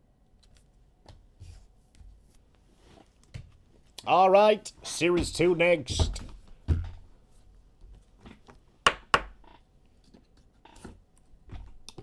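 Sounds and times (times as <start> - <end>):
faint handling sounds: 0.3 - 4.0.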